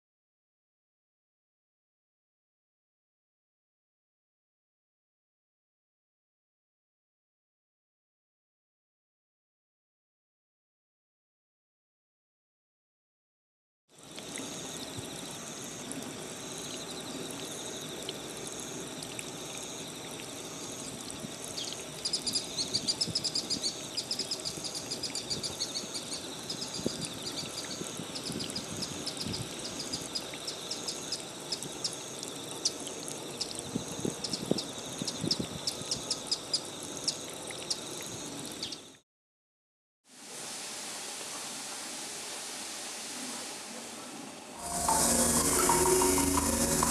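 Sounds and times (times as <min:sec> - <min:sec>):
insect high whine: 0:14.0 - 0:39.0, 0:44.6 - 0:46.9
rapid high twittering calls: 0:21.5 - 0:32.0.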